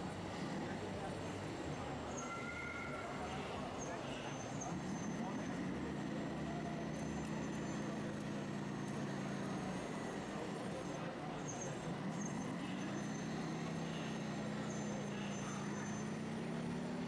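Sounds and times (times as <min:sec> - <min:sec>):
faint voices of onlookers: 0:00.0 - 0:17.0
toy excavator motor hum: 0:04.4 - 0:17.0.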